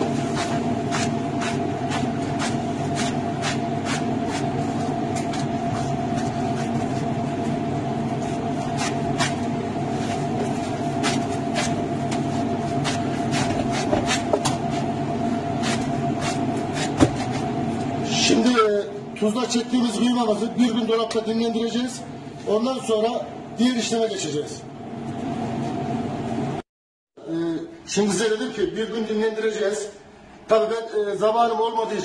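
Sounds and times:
machine hum: 0.0 - 26.6.

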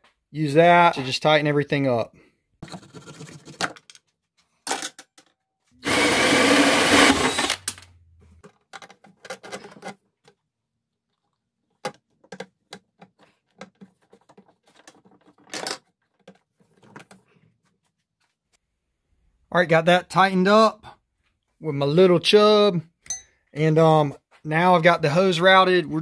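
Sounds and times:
small power tool running: 5.8 - 7.8
clicks and knocks of handling: 7.6 - 10.5, 11.1 - 17.4.

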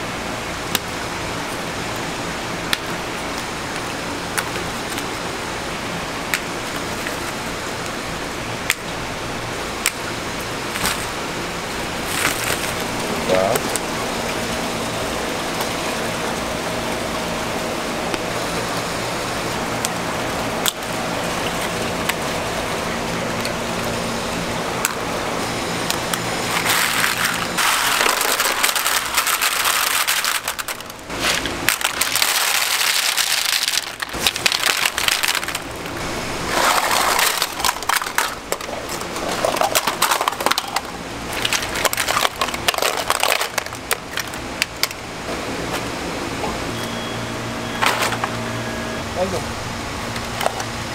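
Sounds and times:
background hum and hiss: 0.0 - 50.9
shells clattering in baskets: 26.5 - 35.7.

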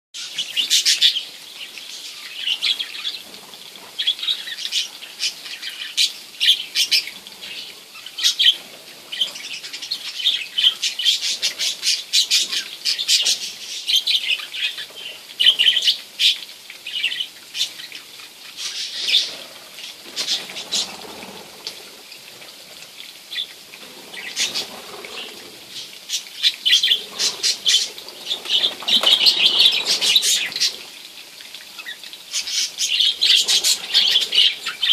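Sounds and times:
wings fluttering: 19.2 - 22.0, 23.8 - 30.9.

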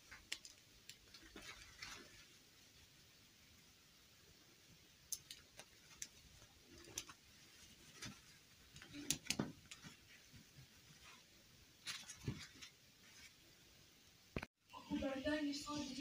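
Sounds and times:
fabric dresses rustling: 0.0 - 3.0, 5.5 - 13.6
plastic dolls tapping and clicking: 5.0 - 7.2, 8.7 - 10.0.

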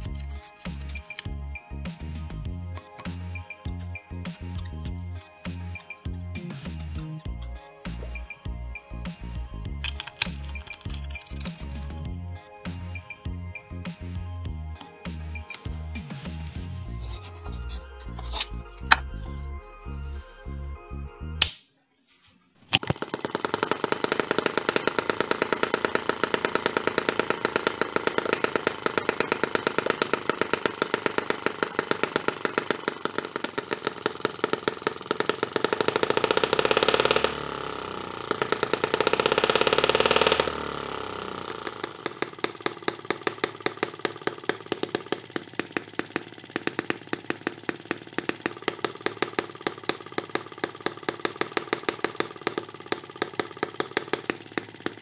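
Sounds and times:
small model engine running: 22.8 - 55.0.

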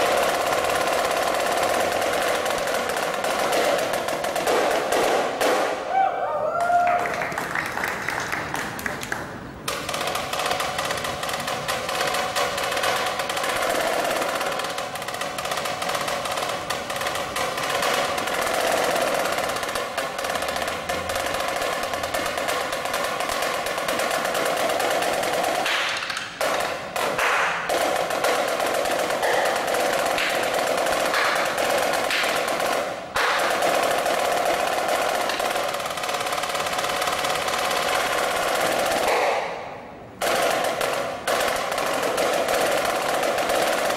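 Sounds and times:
snare drum rolls: 0.0 - 6.0, 6.9 - 43.9.

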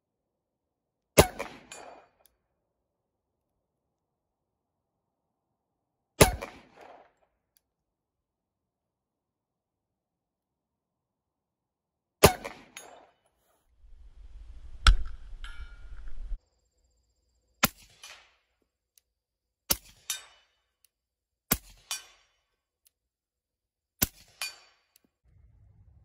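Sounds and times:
pistol shots: 1.2 - 1.9, 6.2 - 7.0
wind buffeting microphone: 13.8 - 16.4.

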